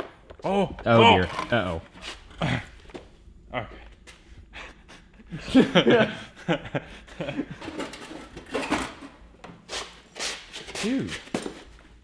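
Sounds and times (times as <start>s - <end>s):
men laughing: 4.5s - 8.0s.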